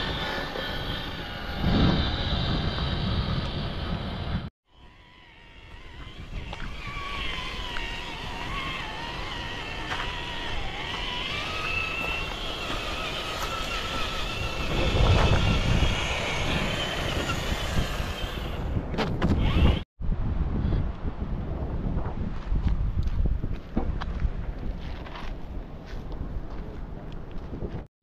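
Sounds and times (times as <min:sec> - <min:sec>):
wind on microphone: 0:00.0 - 0:04.5, 0:05.6 - 0:27.9
electric motor whine: 0:00.0 - 0:19.8.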